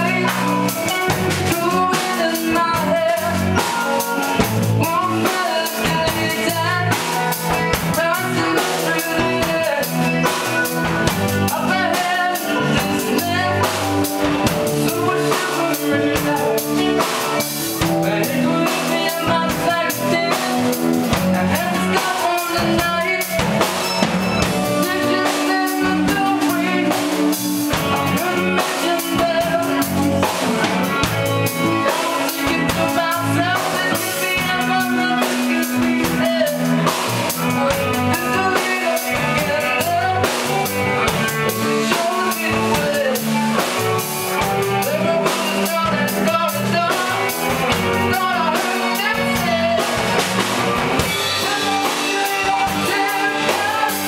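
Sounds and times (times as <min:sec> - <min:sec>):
bass guitar: 0:00.0 - 0:54.0
drum kit: 0:00.0 - 0:54.0
electric guitar: 0:00.0 - 0:54.0
keyboard: 0:00.0 - 0:54.0
man singing into a microphone: 0:00.0 - 0:54.0.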